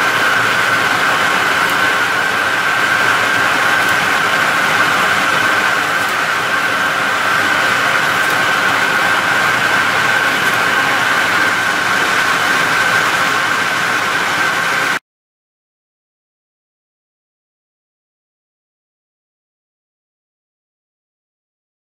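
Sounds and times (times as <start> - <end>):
machine running with high whine: 0.0 - 15.0.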